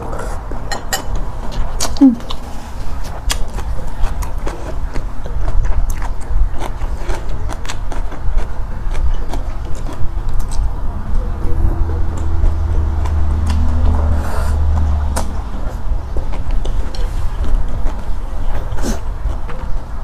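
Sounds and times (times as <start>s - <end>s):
steady low hum: 0.0s - 20.0s
wet chewing mouth clicks: 3.0s - 19.8s.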